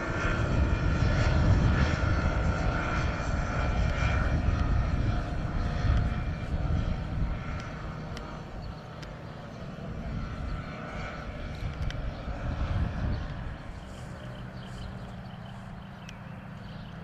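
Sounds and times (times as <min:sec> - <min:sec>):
aircraft engines droning: 0:00.0 - 0:17.0.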